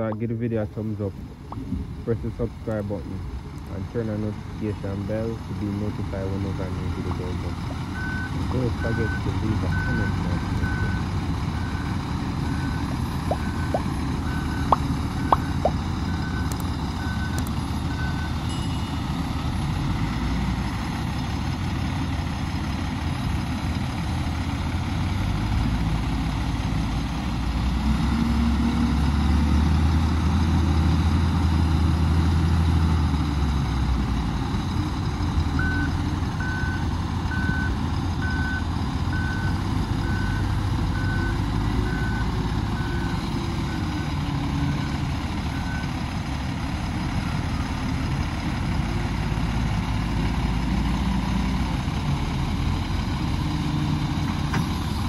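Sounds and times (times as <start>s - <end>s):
diesel engine revving: 0.0s - 18.5s, 19.4s - 55.0s
reversing alarm beeping: 12.5s - 18.4s.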